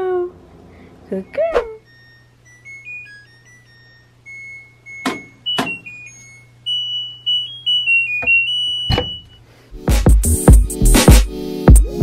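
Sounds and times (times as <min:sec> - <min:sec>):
washer electronic beep tune: 0:01.2 - 0:09.4
door latch thump: 0:08.9 - 0:09.2.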